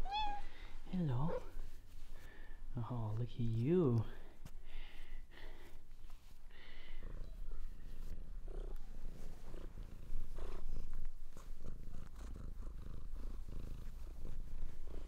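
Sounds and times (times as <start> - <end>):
cat purring: 6.2 - 15.0.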